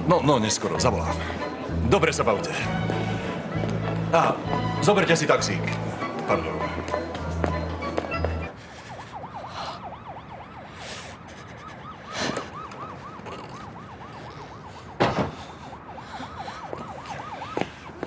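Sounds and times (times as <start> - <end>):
siren yelping: 7.5 - 18.0.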